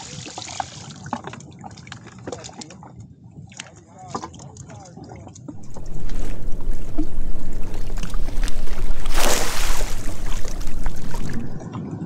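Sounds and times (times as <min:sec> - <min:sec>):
watercraft engine idling: 0:05.6 - 0:11.6
wind rumbling on microphone: 0:05.6 - 0:11.7.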